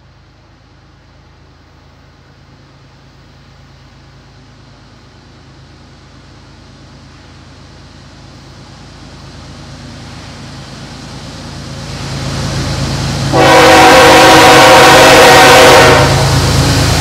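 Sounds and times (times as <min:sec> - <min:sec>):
train rumbling: 0:00.0 - 0:17.0
locomotive air horn: 0:13.3 - 0:16.6.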